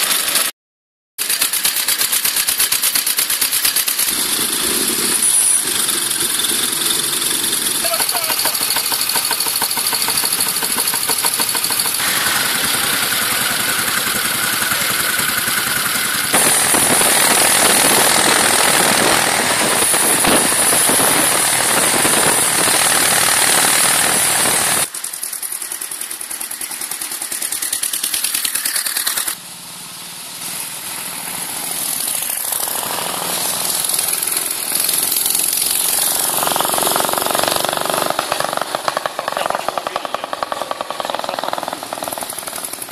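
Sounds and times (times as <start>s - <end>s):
motorcycle approaching: 1.2s - 42.9s
motorcycle engines running: 1.2s - 42.9s
wind noise: 16.4s - 24.8s.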